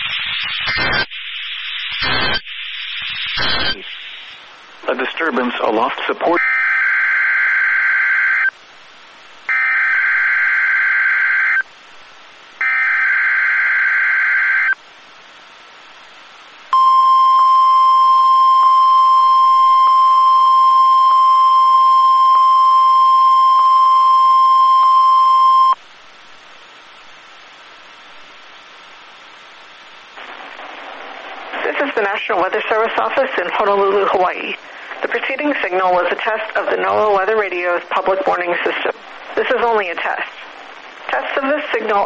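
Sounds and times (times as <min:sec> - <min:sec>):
buzzing data bursts: 0:00.0 - 0:04.4
steady warning alarm tone: 0:16.8 - 0:25.8.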